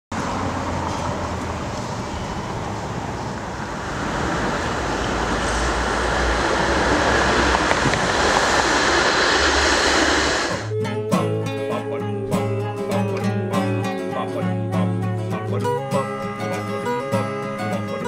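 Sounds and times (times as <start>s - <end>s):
city street traffic hum: 0.1s - 10.7s.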